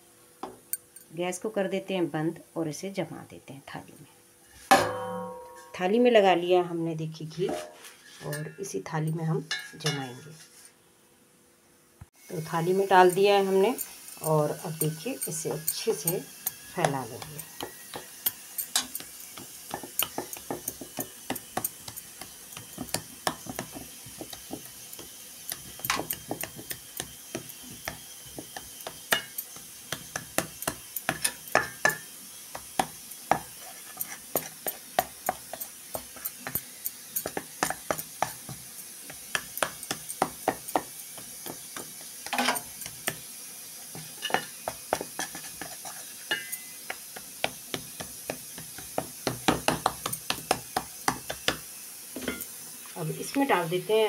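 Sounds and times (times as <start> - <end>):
metal spatula tapping on metal plate: 14.8 - 33.5, 39.1 - 43.2.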